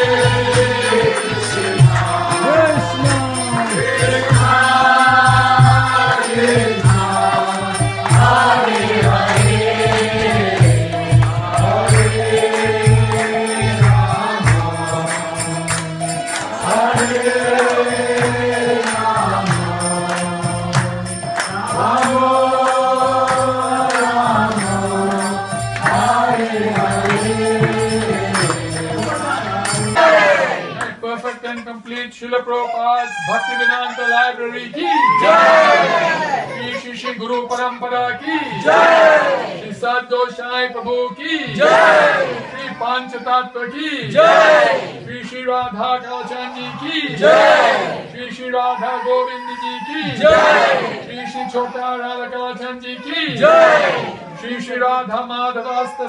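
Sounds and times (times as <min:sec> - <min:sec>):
steady percussion beat: 0:00.0 - 0:31.0, 0:44.0 - 0:44.8
voices chanting a mantra: 0:00.0 - 0:56.0.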